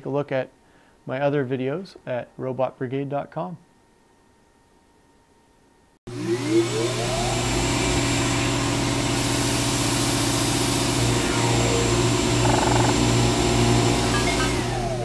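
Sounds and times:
vacuum cleaner running: 0:06.1 - 0:15.0.

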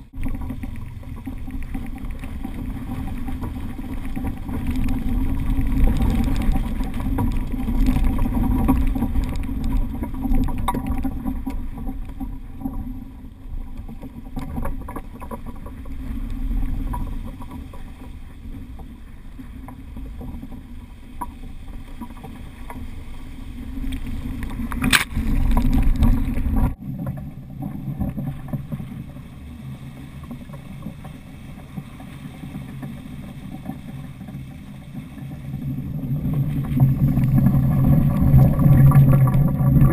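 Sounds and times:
water rushing along hull: 0:00.0 - 0:39.9
wind rumble on microphone: 0:00.0 - 0:39.9.

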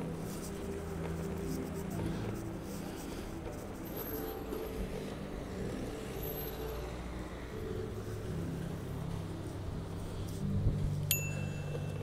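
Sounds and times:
low vehicle engine hum: 0:00.0 - 0:12.0
sharp click with ringing ping: 0:11.1 - 0:11.8.

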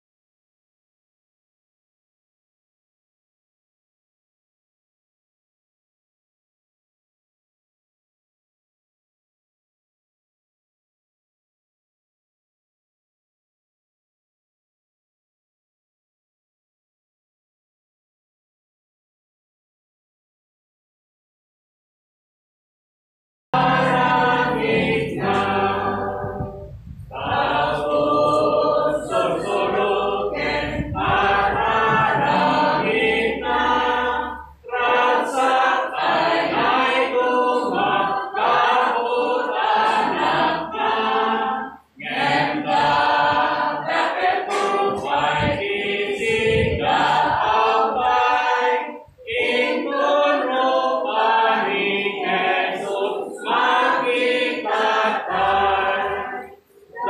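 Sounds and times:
choir singing: 0:23.6 - 0:57.0.

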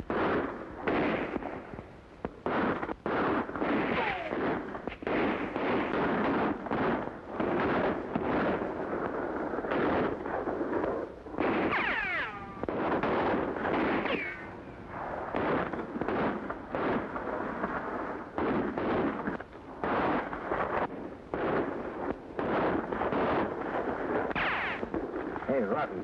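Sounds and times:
gunshots: 0:00.0 - 0:26.0
whining bullet ricochets: 0:03.6 - 0:04.6, 0:11.4 - 0:14.6, 0:24.3 - 0:24.8.

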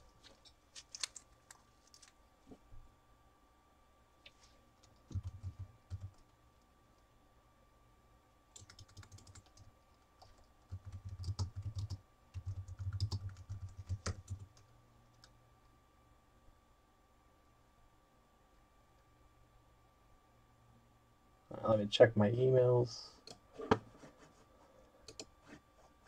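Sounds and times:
typing on keyboard: 0:04.9 - 0:06.3, 0:08.5 - 0:14.6, 0:25.1 - 0:25.3.

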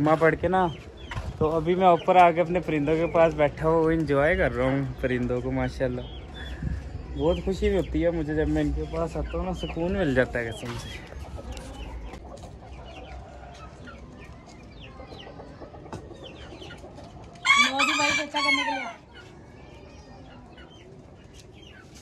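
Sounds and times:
chickens clucking: 0:00.0 - 0:22.0
rooster crowing: 0:17.4 - 0:19.0.

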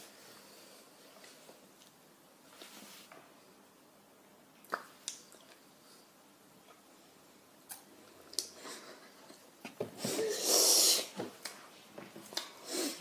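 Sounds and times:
soft breathy noises: 0:00.0 - 0:01.8, 0:05.6 - 0:13.0
boy's forceful burst of breath: 0:10.0 - 0:11.2.

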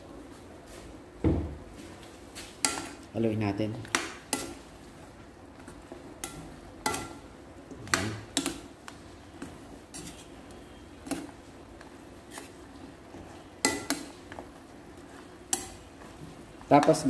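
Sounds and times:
spatula scraping a wok: 0:08.3 - 0:16.6.

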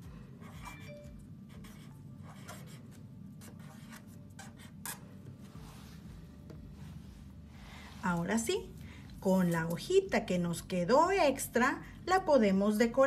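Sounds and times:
marker pen strokes on paper: 0:00.4 - 0:08.5.

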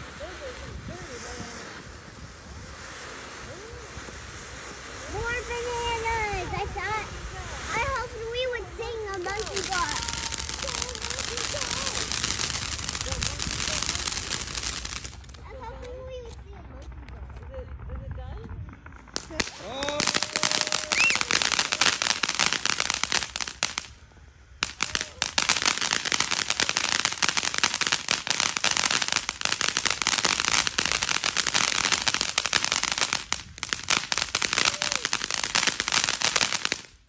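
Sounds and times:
firework crackling and hissing: 0:00.0 - 0:16.6, 0:18.9 - 0:37.0.

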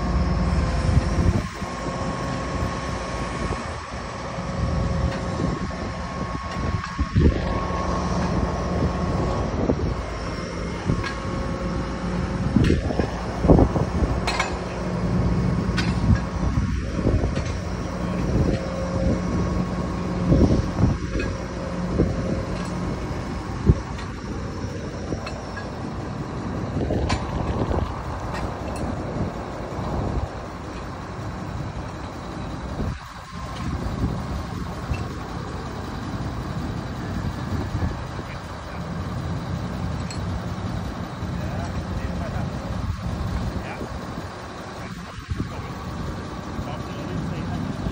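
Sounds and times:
crane diesel engine humming: 0:00.0 - 0:47.9
metallic clanks and knocks: 0:14.2 - 0:14.8.

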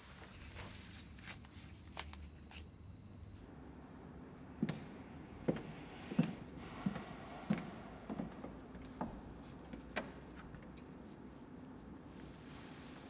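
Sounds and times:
soft rustles and clicks: 0:08.1 - 0:13.0.

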